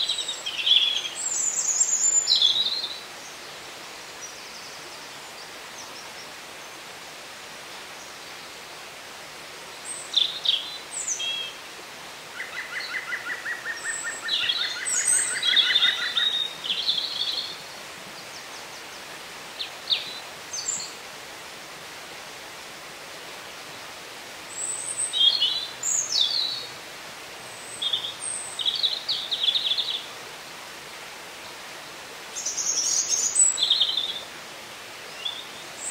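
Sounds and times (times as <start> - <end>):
woodland birds singing: 0.0 - 7.0, 9.7 - 11.6, 12.3 - 21.1, 23.7 - 26.8, 27.4 - 30.2, 31.4 - 34.3, 34.9 - 35.9
steady background hiss: 0.0 - 35.9.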